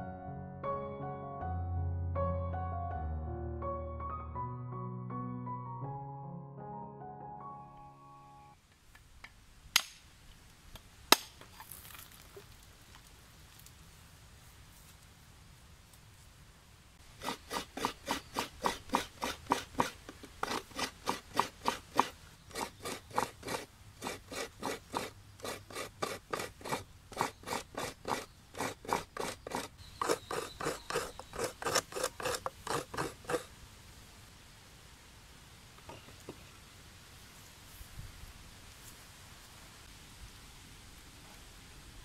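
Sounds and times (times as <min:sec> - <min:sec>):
coconut grating rasping strokes: 0:17.0 - 0:33.5.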